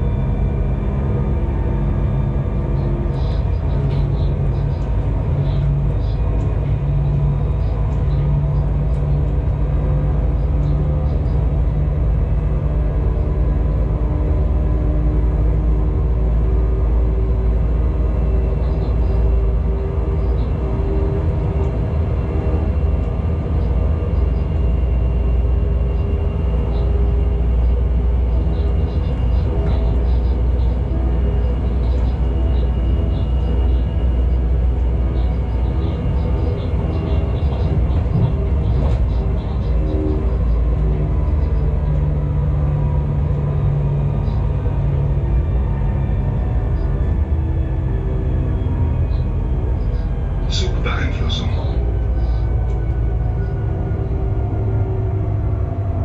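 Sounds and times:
locomotive rumble: 0.0s - 56.0s
steady hum: 50.2s - 52.4s.

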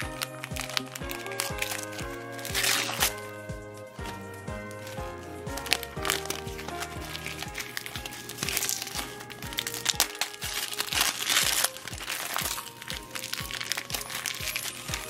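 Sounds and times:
background music with steady beat: 0.0s - 15.0s
wrapping paper crinkling and tearing: 5.6s - 15.0s.

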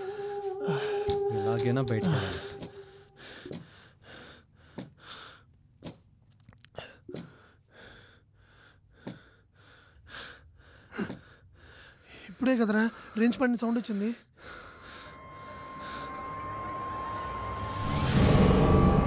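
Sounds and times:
man breathing heavily: 2.1s - 5.5s, 6.8s - 12.4s.

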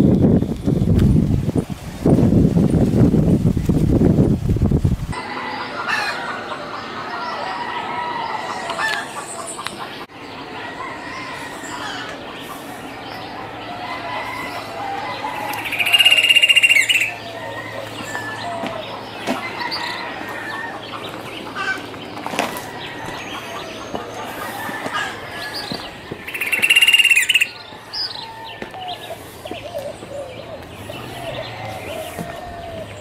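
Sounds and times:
birds chirping: 5.2s - 33.0s
loud high bird call: 10.5s - 20.9s, 24.4s - 30.3s.

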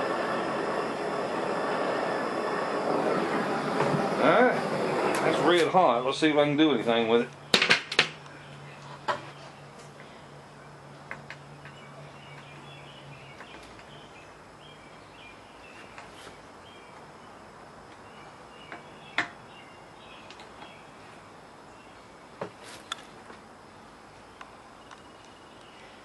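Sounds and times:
low hum: 0.0s - 7.5s
outdoor background noise: 0.0s - 26.0s.

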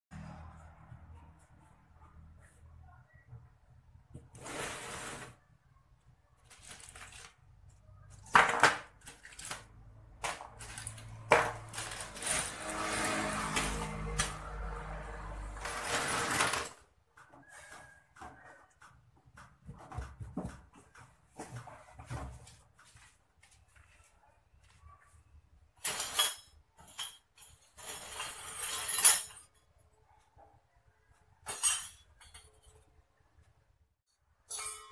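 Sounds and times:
small metal parts clattering: 6.4s - 7.4s, 8.1s - 13.7s, 25.8s - 29.6s
metal cans clinking and scraping: 6.5s - 7.4s, 8.3s - 14.5s, 15.6s - 16.8s.

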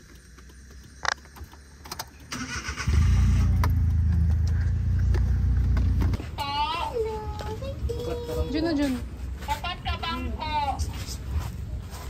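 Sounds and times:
car engine starting and idling: 0.0s - 7.2s.

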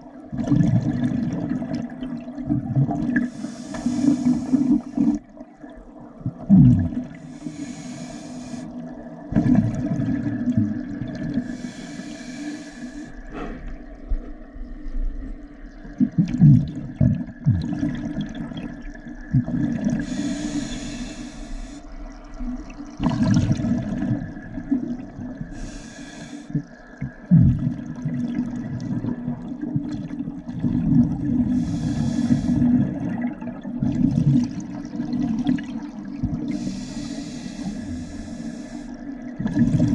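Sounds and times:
exhaled air bubbling: 0.0s - 39.9s
hissing regulator inhalations: 3.2s - 5.2s, 7.2s - 8.8s, 11.4s - 13.8s, 20.0s - 21.9s, 25.5s - 26.7s, 31.5s - 32.7s, 36.4s - 39.1s.

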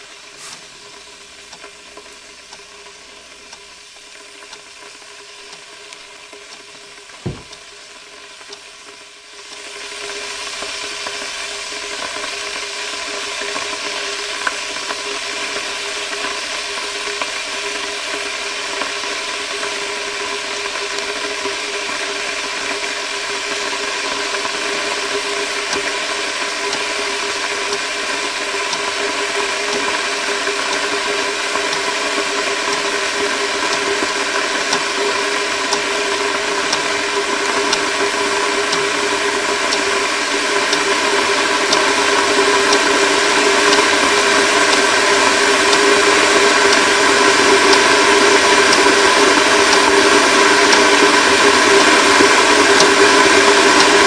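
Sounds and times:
wall clock ticking: 1.3s - 7.7s, 23.6s - 54.0s.

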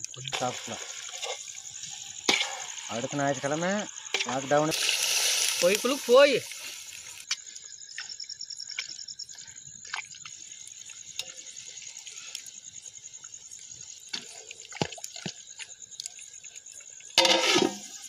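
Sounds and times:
wood fire crackling: 0.0s - 7.3s
crickets chirring: 0.0s - 18.0s
gravy simmering with bubbling pops: 0.0s - 18.0s
person speaking: 5.5s - 6.5s.

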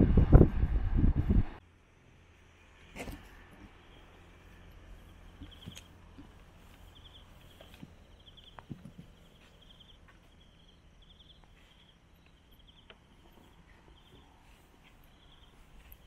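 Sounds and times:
cricket chirping: 1.8s - 16.0s
small knocks: 7.6s - 10.2s.

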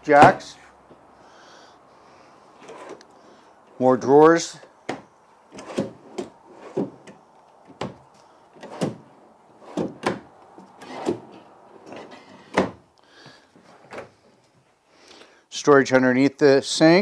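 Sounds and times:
drawers opening and shutting: 2.6s - 3.1s, 4.9s - 12.8s, 13.6s - 14.3s.

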